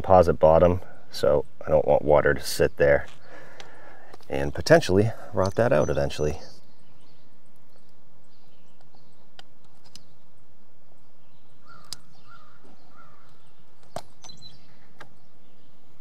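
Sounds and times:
outdoor background hiss: 0.0s - 16.0s
sharp clicks: 8.8s - 10.1s, 11.8s - 14.4s
crow cawing: 11.6s - 13.4s.

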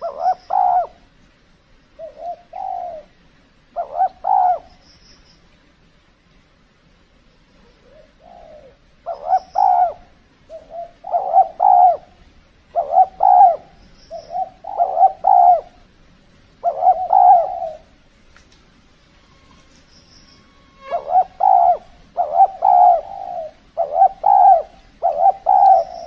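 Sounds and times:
dove cooing: 0.0s - 1.1s, 2.0s - 4.8s, 7.6s - 15.9s, 16.6s - 18.0s, 20.4s - 26.0s.

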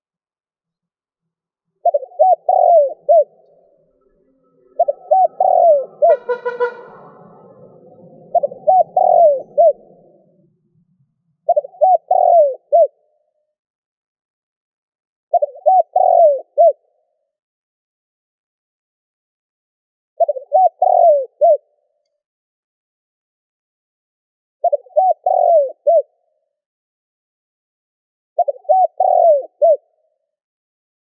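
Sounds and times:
dove cooing: 1.8s - 10.4s, 11.5s - 13.0s, 15.3s - 16.8s, 20.2s - 21.6s, 24.6s - 26.1s, 28.4s - 29.8s
brief buzzy bird call: 5.3s - 7.6s.

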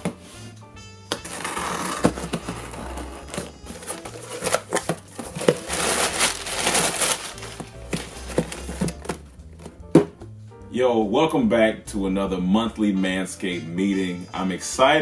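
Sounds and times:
packing tape tearing: 1.1s - 9.3s
tissue paper rustling: 1.2s - 9.3s
cardboard flaps knocks and scrapes: 1.2s - 10.1s.

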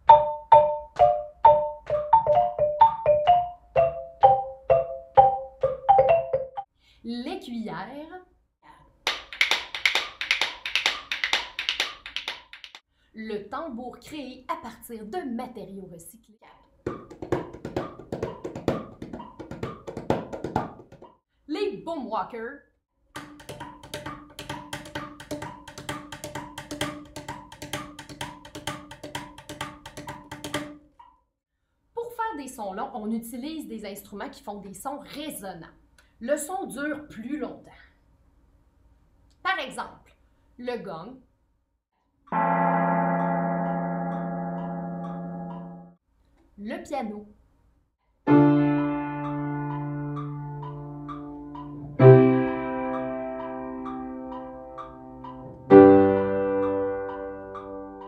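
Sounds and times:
plastic tube struck rhythmically: 0.0s - 6.7s, 16.8s - 21.2s, 23.2s - 31.2s, 48.8s - 58.0s
wooden xylophone tune: 0.0s - 6.7s.

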